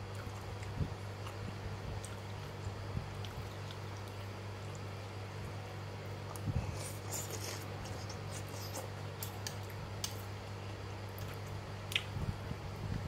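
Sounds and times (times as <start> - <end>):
stirring noodles and chewing: 6.3 - 10.2.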